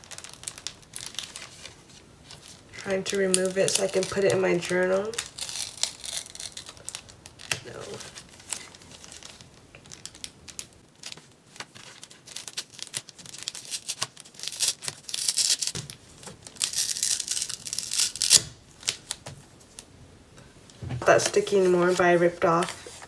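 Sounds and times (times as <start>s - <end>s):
paper sticker peeling and tearing: 2.9s - 9.4s, 16.5s - 19.2s.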